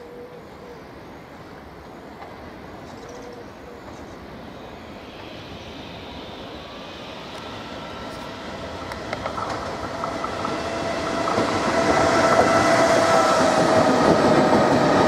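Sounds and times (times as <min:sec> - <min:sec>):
electric locomotive running: 0:03.8 - 0:15.0.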